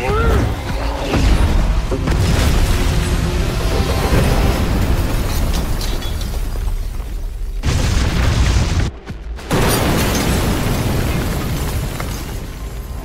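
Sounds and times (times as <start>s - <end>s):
low rumbling explosion: 1.2s - 12.4s.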